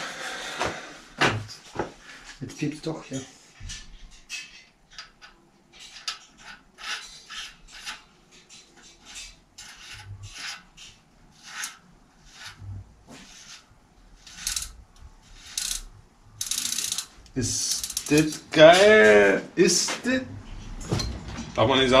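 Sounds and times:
bicycle freewheel rasping: 0:14.2 - 0:18.4.

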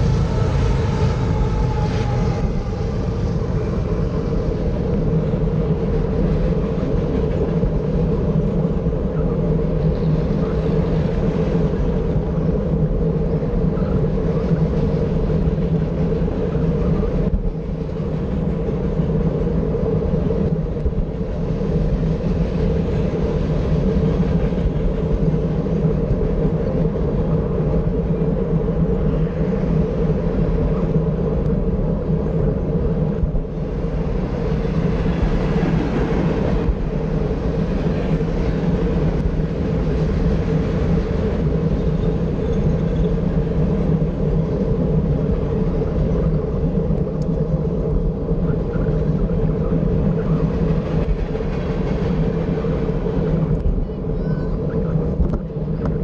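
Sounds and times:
road traffic passing: 0:00.0 - 0:06.2, 0:33.5 - 0:45.0
freight train rumbling: 0:00.0 - 0:56.0.

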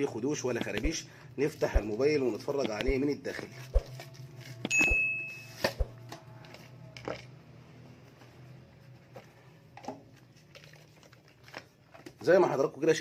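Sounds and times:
high beep tone: 0:04.7 - 0:05.6.

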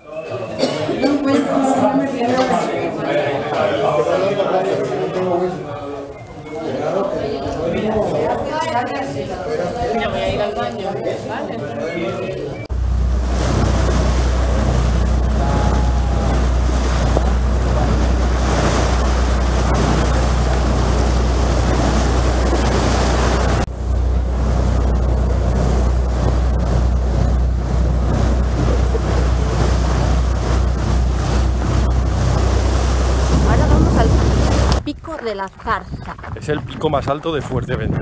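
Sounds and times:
boat engine drone: 0:00.0 - 0:08.5, 0:10.9 - 0:35.0
rushing water of wake: 0:00.0 - 0:34.8
wind buffeting microphone: 0:12.7 - 0:38.0.

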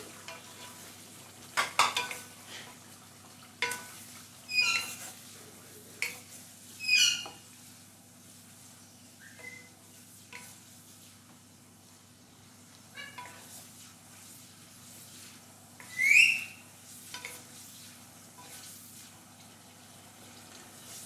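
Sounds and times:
faint sizzle: 0:00.0 - 0:21.0
wooden spatula scraping pan: 0:03.6 - 0:06.5, 0:09.4 - 0:11.3, 0:13.0 - 0:19.3.

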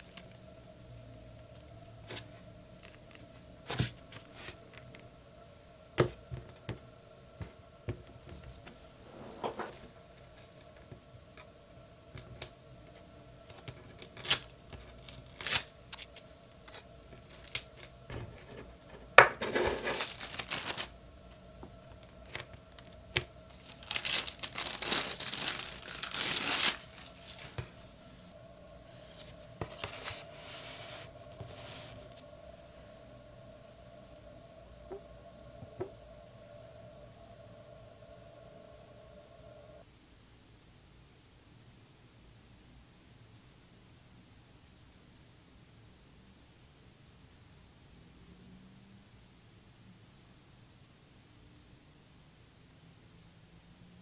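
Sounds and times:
paper peeling and tearing: 0:14.0 - 0:17.9, 0:23.5 - 0:27.6
paper handled on table: 0:28.9 - 0:32.2.

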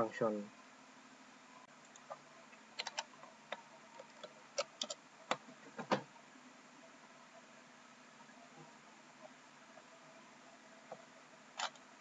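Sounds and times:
keyboard and mouse clicks: 0:02.8 - 0:03.1.

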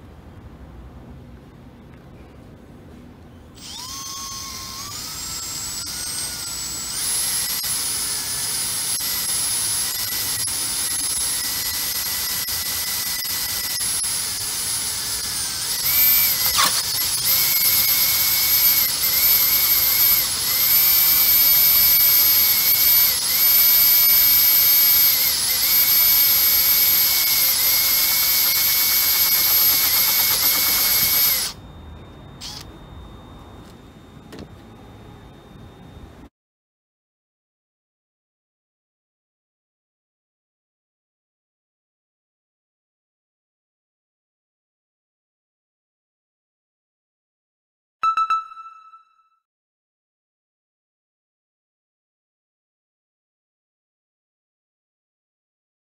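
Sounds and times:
drill motor whine: 0:03.6 - 0:36.0
cutter scraping plastic: 0:15.8 - 0:17.4.

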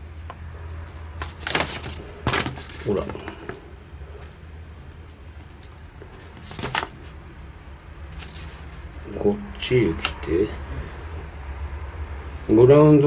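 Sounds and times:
low steady hum: 0:00.0 - 0:13.0
paper sheet rustling: 0:01.2 - 0:03.5, 0:06.1 - 0:07.2, 0:08.1 - 0:09.0.

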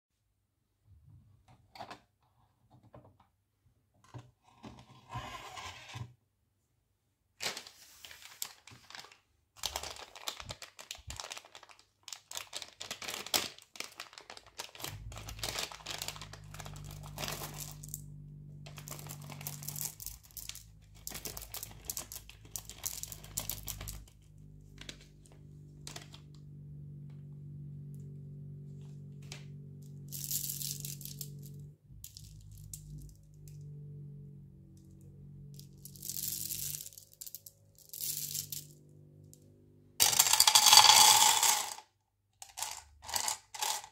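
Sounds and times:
plastic bag crinkling and tearing: 0:07.4 - 0:18.0, 0:18.7 - 0:24.1
low steady hum: 0:14.7 - 0:41.7.

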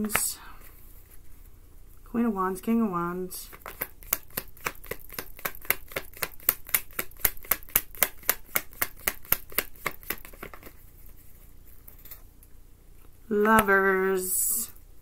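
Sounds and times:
cards shuffled by hand: 0:03.5 - 0:11.9.

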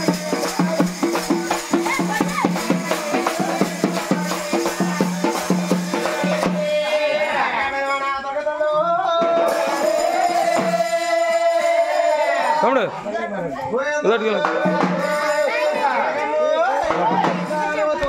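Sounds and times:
dance music with drums and rattles: 0:00.0 - 0:07.2, 0:09.2 - 0:12.0, 0:14.3 - 0:15.6, 0:16.8 - 0:18.0.

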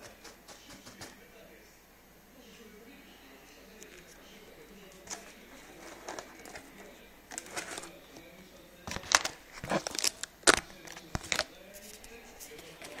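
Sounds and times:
cardboard and foam rustling: 0:08.9 - 0:13.0.

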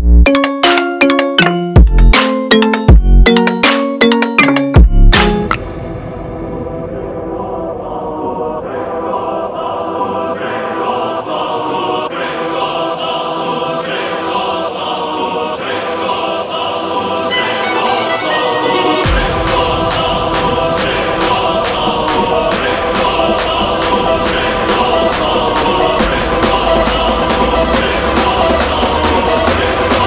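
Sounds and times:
steady beat: 0:00.2 - 0:05.7, 0:17.6 - 0:30.0
voices singing held chords: 0:07.3 - 0:30.0.

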